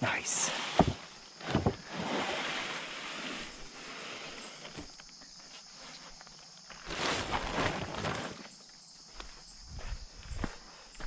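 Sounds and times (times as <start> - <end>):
boards rustling: 0.5 - 8.7
wooden boards knocking together: 0.8 - 1.8.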